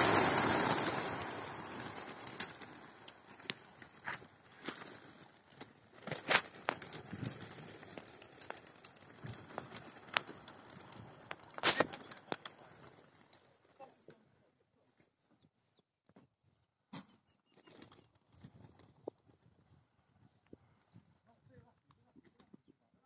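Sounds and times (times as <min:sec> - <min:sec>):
pigeon wingbeats whirring: 0:00.0 - 0:04.2.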